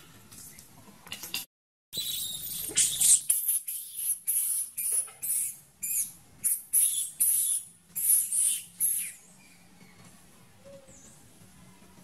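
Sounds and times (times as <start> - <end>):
baby monkey squealing: 2.0 - 10.0.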